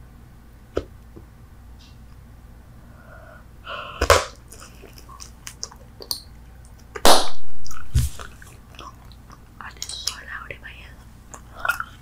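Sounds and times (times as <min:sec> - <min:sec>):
gum chewing smacks: 0:04.3 - 0:07.0, 0:07.6 - 0:10.2, 0:11.3 - 0:12.0.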